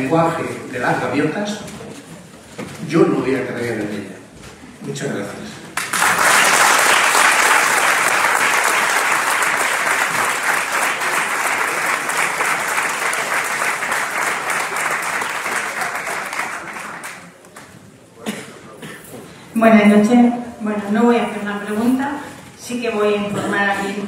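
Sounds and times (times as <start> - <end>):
audience applauding: 5.7 - 17.7.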